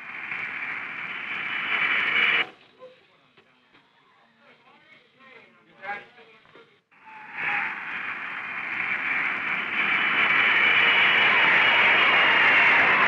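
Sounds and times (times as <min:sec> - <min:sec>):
jet engine rushing with whine: 0:00.0 - 0:02.5, 0:07.0 - 0:13.0.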